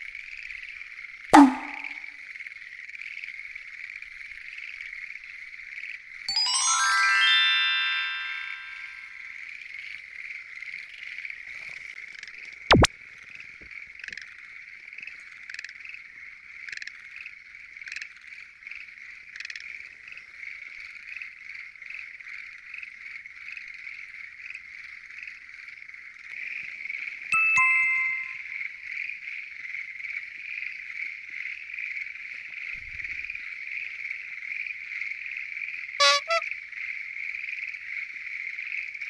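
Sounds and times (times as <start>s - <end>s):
frog chorus: 0.0s - 6.2s, 9.2s - 27.3s, 28.7s - 39.0s
sharp knock: 1.4s - 2.0s
single louder frog calls: 1.4s - 2.0s, 33.4s - 39.0s.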